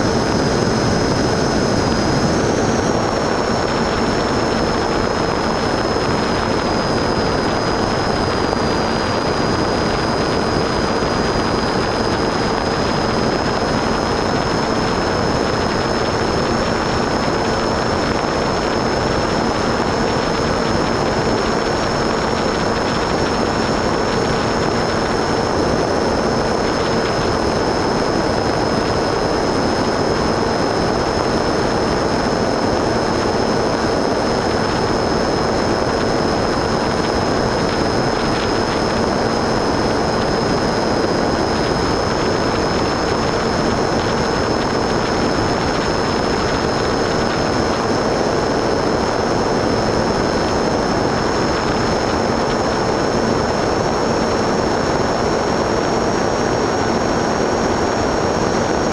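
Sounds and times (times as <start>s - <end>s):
motor and propeller drone: 0.0s - 58.9s
thin high whine: 0.0s - 58.9s.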